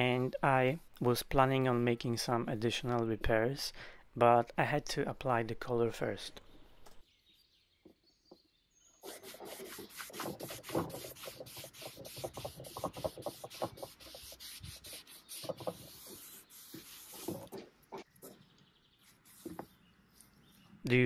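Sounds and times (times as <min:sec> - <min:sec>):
cloth rubbing on wood: 0:09.0 - 0:18.1.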